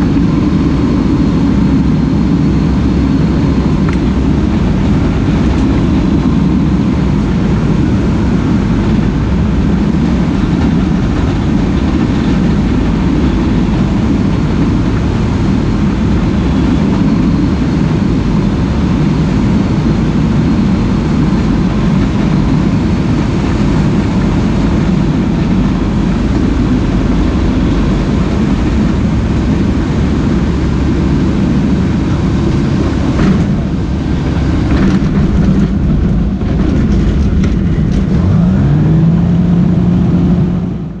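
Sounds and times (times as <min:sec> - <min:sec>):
aircraft engine and propeller drone: 0:00.0 - 0:41.0
rushing air: 0:00.0 - 0:41.0.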